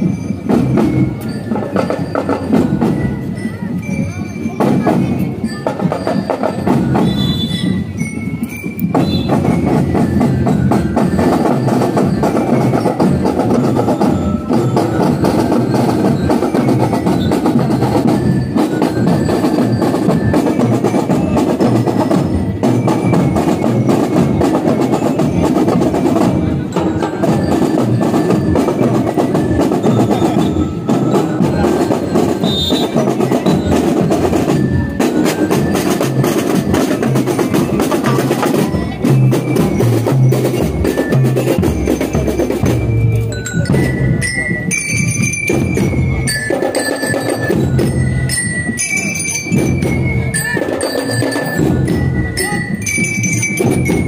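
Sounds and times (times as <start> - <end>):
bell lyres melody: 0.0 - 54.0
snare and bass drums marching: 0.0 - 54.0.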